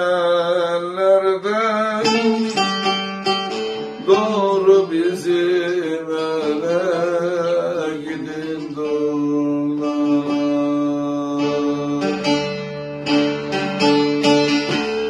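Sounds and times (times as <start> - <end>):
man singing: 0.0 - 3.0, 3.8 - 12.7
plucked long-necked lute: 0.0 - 15.0.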